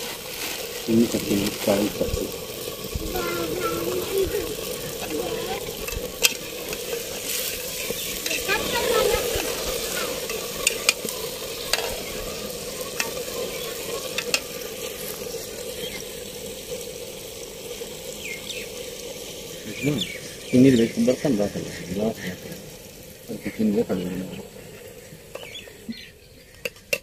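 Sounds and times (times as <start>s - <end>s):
ladle stirring in metal pot: 0.0s - 15.2s
cooking sizzle: 0.0s - 27.0s.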